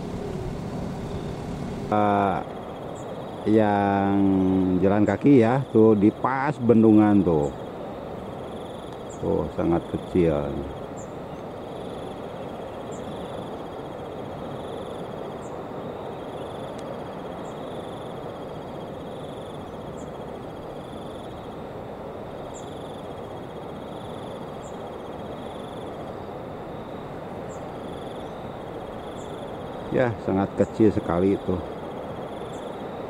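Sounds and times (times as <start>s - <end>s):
steady rushing noise: 0.0s - 5.2s
insect trilling: 0.0s - 33.0s.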